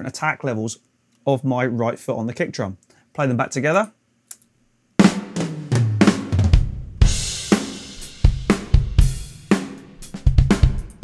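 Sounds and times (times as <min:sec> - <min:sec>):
hi-hat hits: 0:07.0 - 0:11.0.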